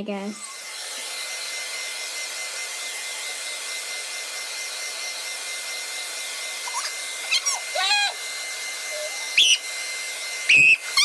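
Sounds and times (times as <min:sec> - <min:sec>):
hair dryer running: 0:00.0 - 0:11.0.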